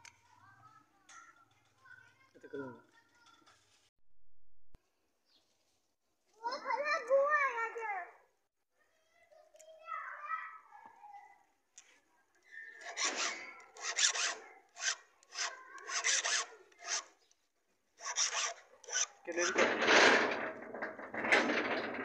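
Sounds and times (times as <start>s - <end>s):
hand file rasping on metal: 12.8s - 17.2s, 18.0s - 19.8s.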